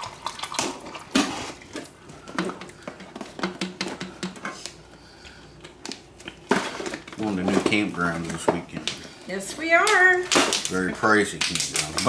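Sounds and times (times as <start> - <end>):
snack packaging rustling: 4.6 - 9.2.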